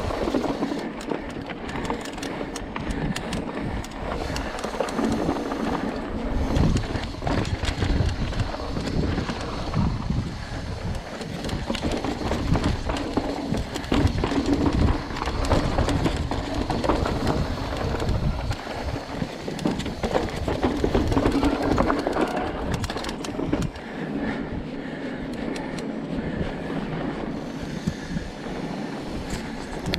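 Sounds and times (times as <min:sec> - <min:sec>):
bike rattling and knocking: 0:00.0 - 0:29.9
wind buffeting microphone: 0:00.0 - 0:29.9.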